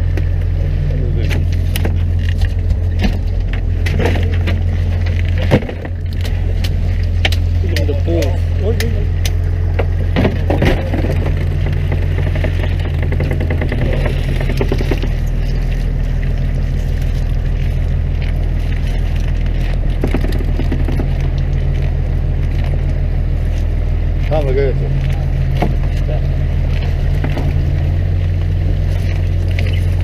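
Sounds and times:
boat engine running: 0.0 - 30.0
fish trap rattling and scraping: 9.8 - 22.9.

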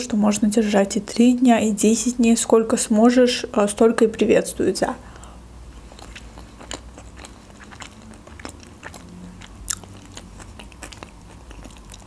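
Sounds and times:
close chewing: 5.8 - 12.0.

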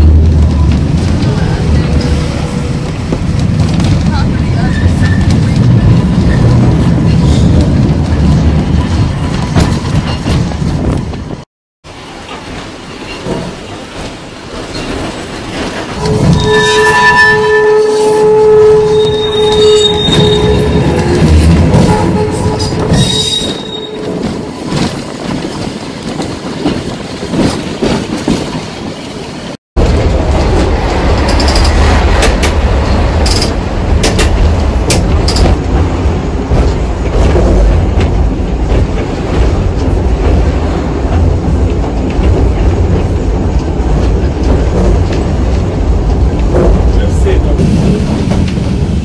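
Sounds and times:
tram wheels rumbling on rail: 0.0 - 49.0
high wheel squeaks and clicks: 16.0 - 25.6.

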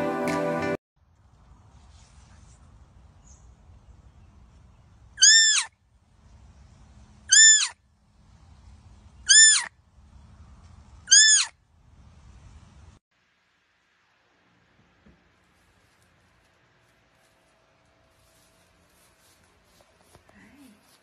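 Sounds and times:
deer fawn bleating: 5.2 - 5.7, 11.1 - 11.5.

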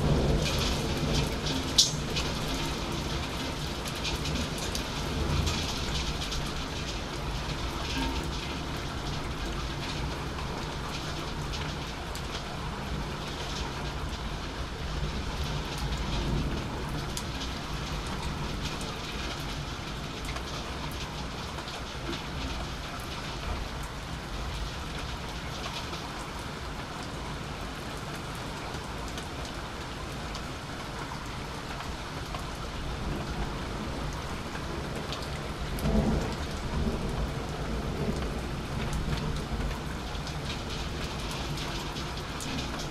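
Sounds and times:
thunder rumbling: 0.0 - 11.8, 33.0 - 42.9
rain pattering: 0.0 - 42.9.

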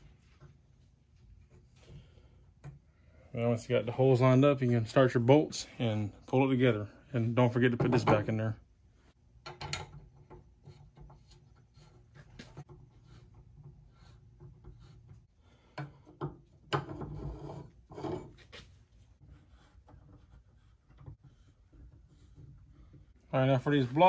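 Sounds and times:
knocks and scrapes: 7.2 - 8.5, 9.4 - 24.0.

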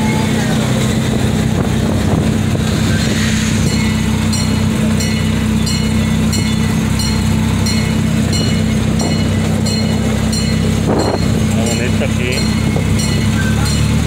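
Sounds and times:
miniature train engine hum: 0.0 - 14.0
bell ringing: 3.6 - 14.0.

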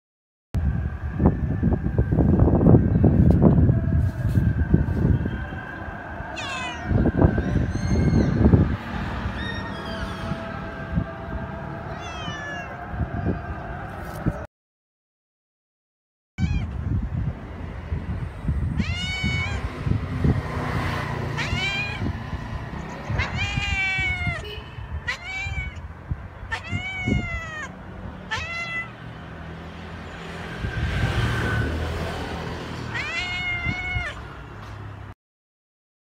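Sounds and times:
steady low rumble: 0.6 - 9.0
cat meowing: 6.4 - 8.4, 9.4 - 10.4, 11.9 - 12.8, 16.4 - 16.8, 18.8 - 19.8, 21.4 - 22.1, 23.0 - 29.0, 32.8 - 34.3.

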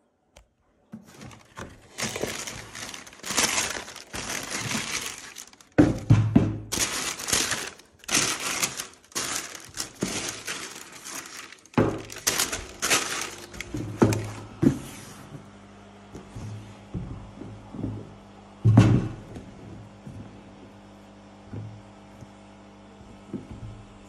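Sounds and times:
tissue paper crinkling: 1.0 - 6.0, 6.7 - 14.5
cardboard box thuds: 1.0 - 14.8.

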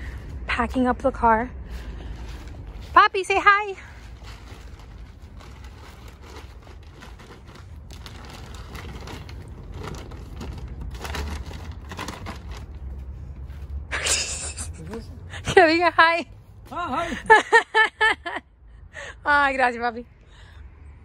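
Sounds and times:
steady low rumble: 0.0 - 13.9
bags rustling and crinkling: 2.1 - 13.2.

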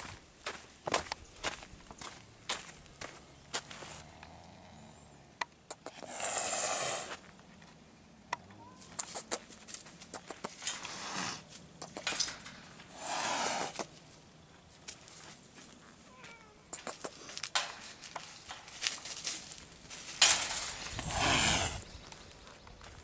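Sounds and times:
cat hissing: 6.0 - 7.1, 12.9 - 13.8, 21.0 - 21.8
feet crackling on dry leaves: 17.8 - 21.2.

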